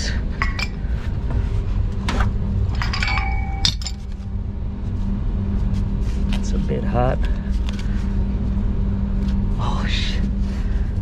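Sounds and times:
low machinery hum: 0.0 - 11.0
metal tools clinking together: 0.4 - 0.8, 2.7 - 4.1.

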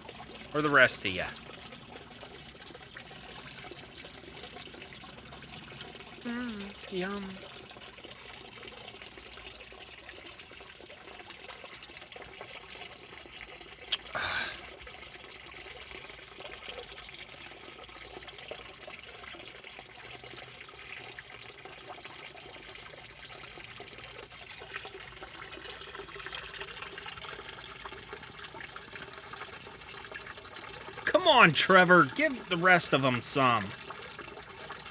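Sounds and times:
water trickling into pond: 0.0 - 34.9.

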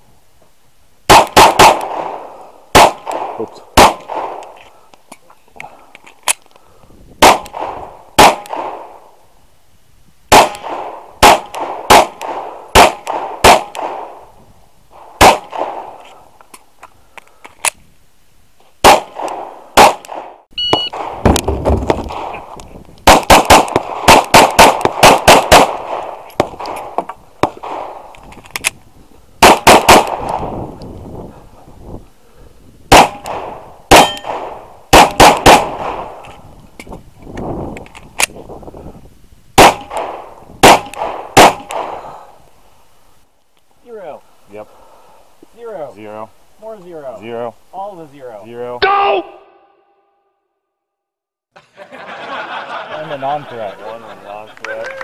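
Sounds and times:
pistol shots with echo: 1.1 - 4.4, 7.2 - 9.0, 10.3 - 14.2, 15.2 - 16.0, 18.8 - 21.2, 23.0 - 28.1, 29.4 - 30.6, 32.9 - 36.2, 39.6 - 42.1
short electronic beep: 20.5 - 21.0.

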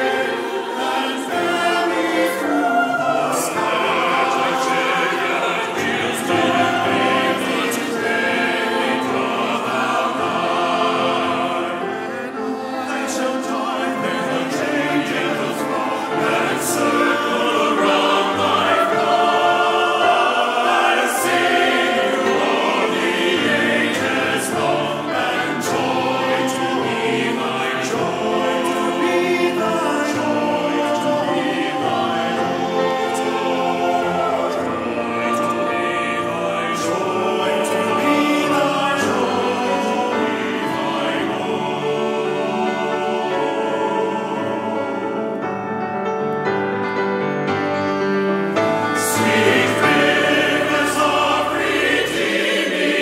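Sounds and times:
mixed choir singing a hymn: 0.0 - 53.0.

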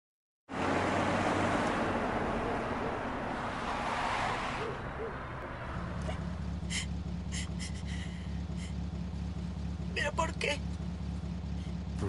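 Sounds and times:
car driving past: 0.5 - 9.8
low engine rumble: 0.6 - 12.0.

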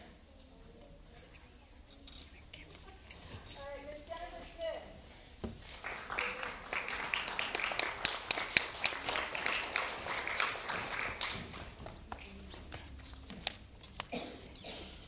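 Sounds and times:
audience applauding: 5.6 - 12.3.

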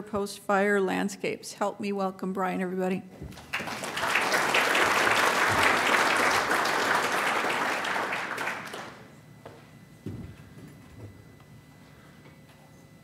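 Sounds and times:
audience applauding: 3.3 - 9.1.

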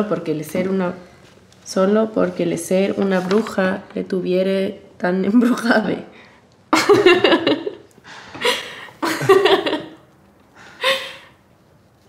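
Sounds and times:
woman laughing: 6.7 - 7.8, 8.4 - 10.0.

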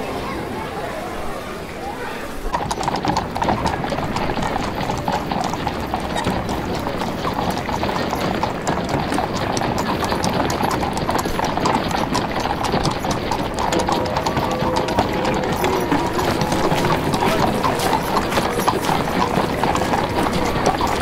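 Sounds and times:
crowd chatter: 0.0 - 21.0
horse hooves clip-clopping: 2.5 - 21.0
faint music: 13.0 - 21.0.

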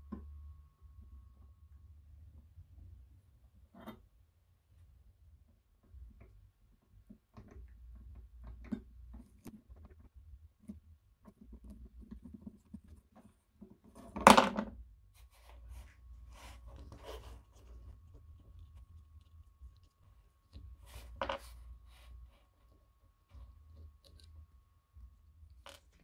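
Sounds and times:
light scraping handling noise: 19.7 - 22.6.

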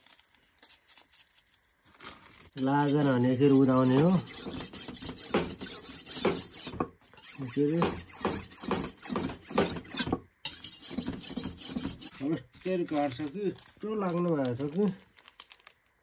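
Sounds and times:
metal spoon scraping a pan: 2.5 - 12.6.

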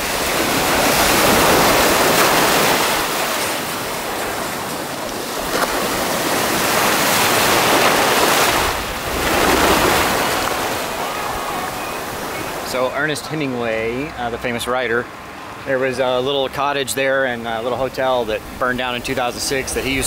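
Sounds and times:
surf breaking on beach: 0.0 - 13.1.

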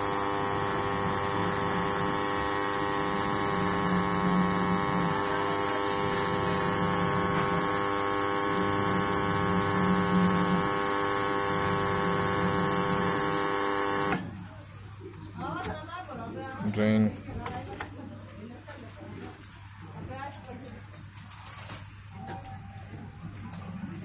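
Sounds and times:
washing machine motor humming: 0.0 - 14.5.

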